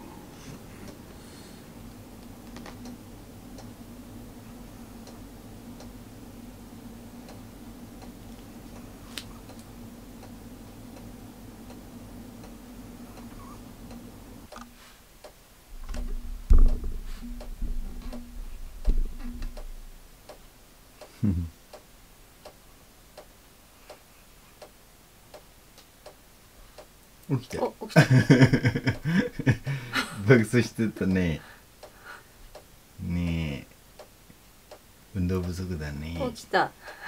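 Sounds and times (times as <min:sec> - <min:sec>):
steady low hum: 0:00.0 - 0:37.0
clock ticking: 0:13.9 - 0:22.6
dog thumping against bedding: 0:15.8 - 0:19.6.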